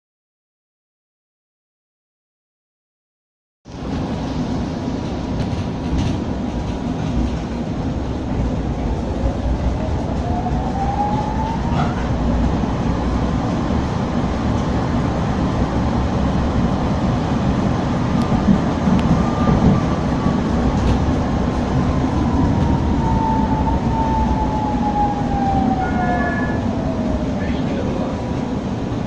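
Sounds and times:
tram wheels rumbling on rails: 3.7 - 29.0
tram motor whine rising: 7.7 - 29.0.

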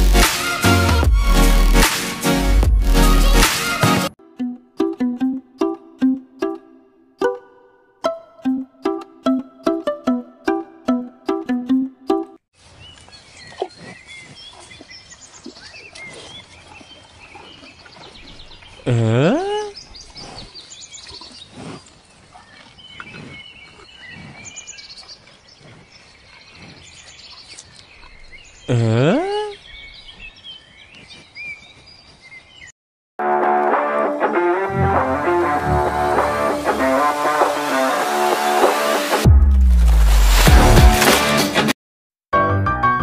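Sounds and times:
birds chirping: 12.7 - 32.7.

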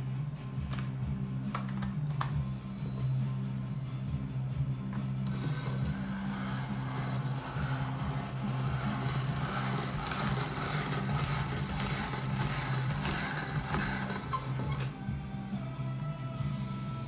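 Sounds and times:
pasta machine crank turning: 5.2 - 15.0.

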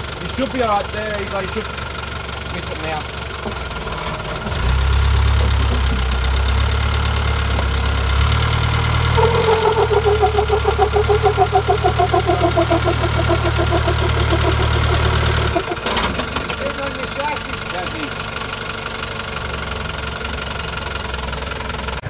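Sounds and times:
engine running under load: 0.0 - 22.0
pulsing whine: 8.9 - 15.9.

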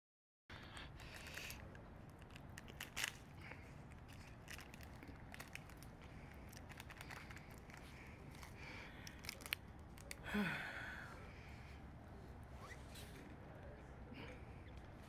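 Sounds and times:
plastic bag crinkling: 2.2 - 3.3, 4.1 - 10.2.

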